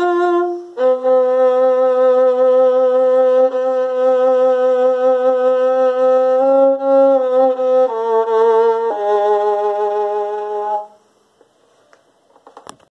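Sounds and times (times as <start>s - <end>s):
bowed violin long notes: 0.0s - 11.0s.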